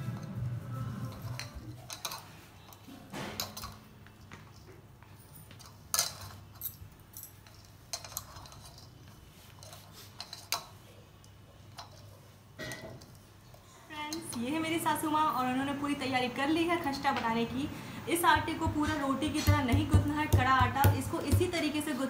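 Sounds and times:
hands rubbing dough: 9.0 - 10.5.

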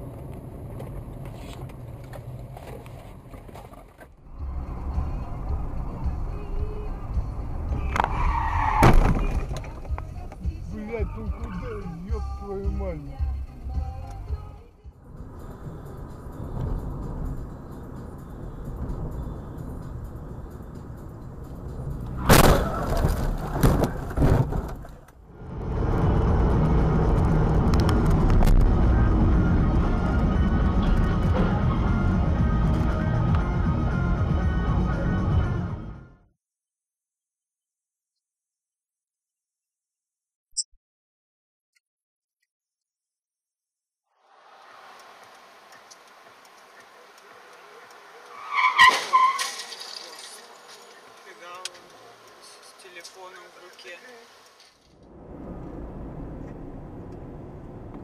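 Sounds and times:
car engine and road rumble: 0.0 - 36.3, 44.1 - 58.0
car crash: 7.8 - 9.8, 21.8 - 25.2, 48.4 - 51.0.

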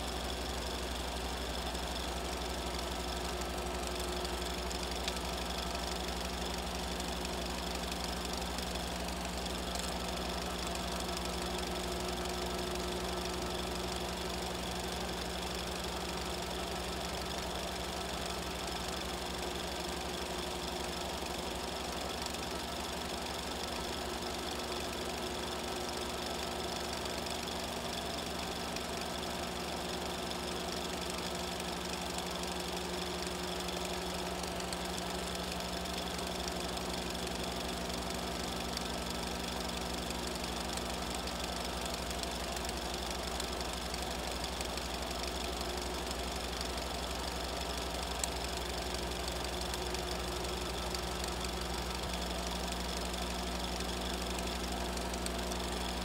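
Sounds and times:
film projector whirring: 0.0 - 56.0.

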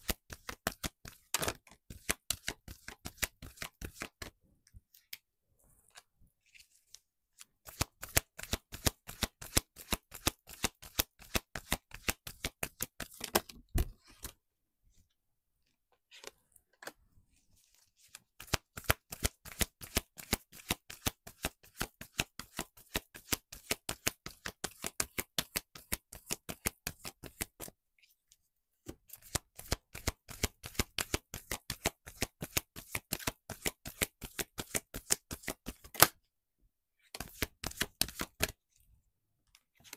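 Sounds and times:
cards being shuffled: 0.0 - 4.3, 5.9 - 14.4, 17.6 - 27.7, 29.1 - 36.2, 37.1 - 38.6.

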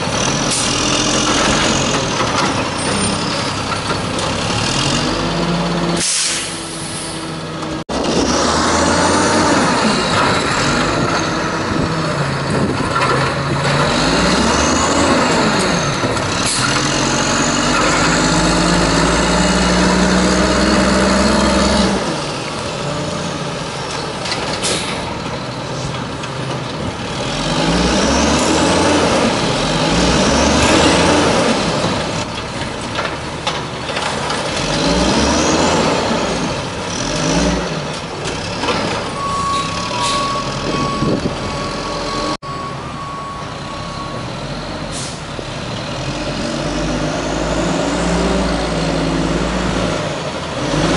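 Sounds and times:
garbage truck engine revving: 0.0 - 42.4, 44.2 - 50.9
reversing beeper: 39.2 - 45.2.

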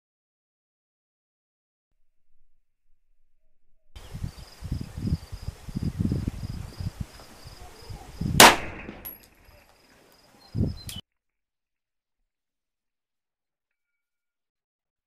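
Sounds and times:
low rumbles: 2.0 - 9.2
insect chirring: 4.0 - 8.4
pistol shot: 8.4 - 9.2.

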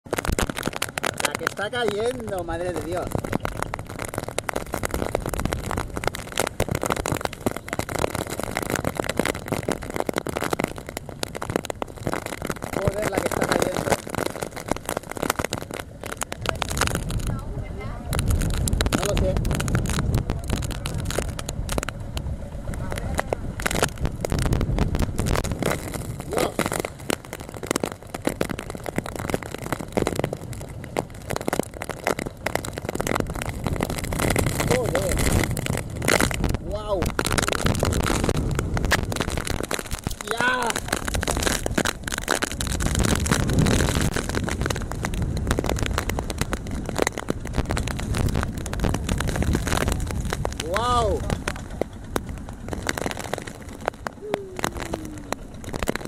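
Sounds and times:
heavy rain on boat: 0.0 - 56.0
wind: 0.0 - 56.0
boat engine running: 46.9 - 56.0.

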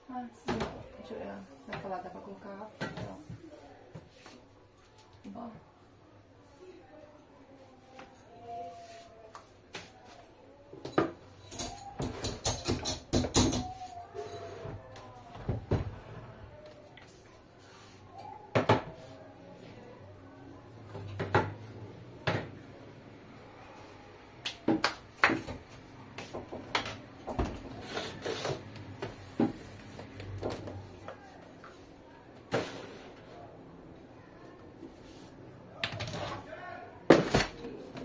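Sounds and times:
objects knocking on wall shelf: 10.9 - 13.8.

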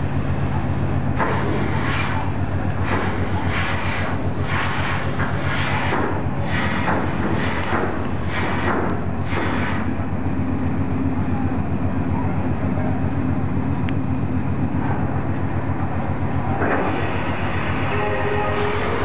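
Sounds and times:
ship engines droning: 0.0 - 19.0
higher tones: 17.2 - 19.0.

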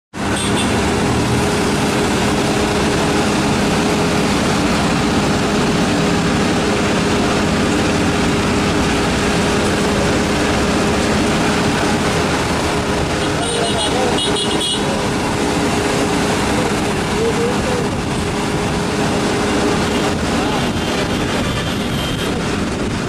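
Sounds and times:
rush of noise: 0.1 - 23.0
vehicle engine running: 0.1 - 23.0.

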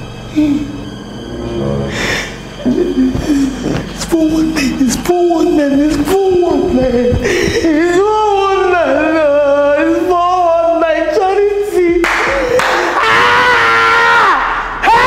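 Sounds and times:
woman wailing: 6.6 - 10.2
woman gasping: 7.1 - 7.8.

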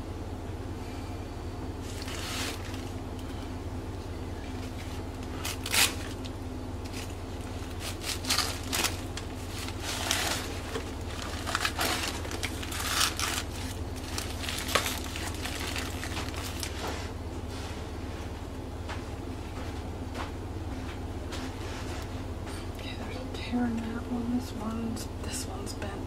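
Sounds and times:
low hum: 0.0 - 26.0
paper rustling and crinkling: 1.8 - 3.0, 4.5 - 17.2.

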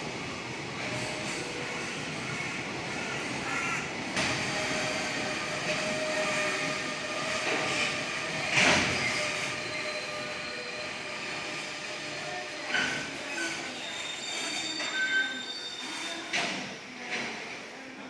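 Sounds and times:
wheel squeal: 7.6 - 11.0, 12.7 - 16.3.

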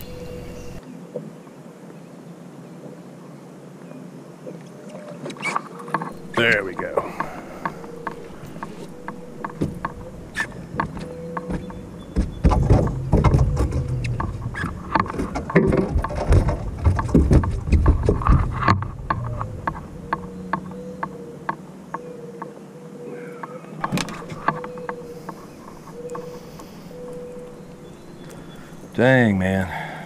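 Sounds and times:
faint steady hum: 0.0 - 0.8, 6.0 - 12.1, 23.8 - 30.0.

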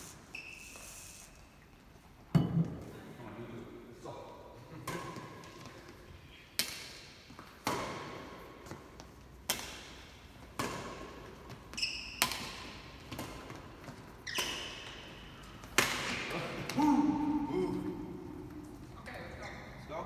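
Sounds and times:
high squeak: 0.3 - 1.4
badminton rackets hitting shuttlecock: 6.6 - 17.3.

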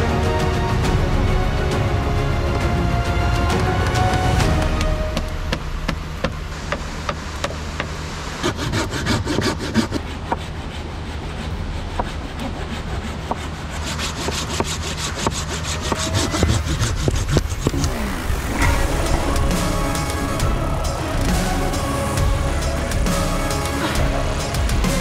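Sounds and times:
hand saw cutting wood: 6.7 - 22.1.

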